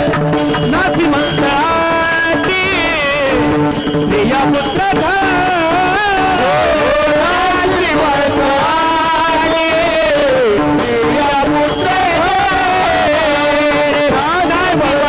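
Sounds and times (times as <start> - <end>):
hand cymbals clashing: 0.0 - 15.0
male chorus singing: 4.2 - 15.0.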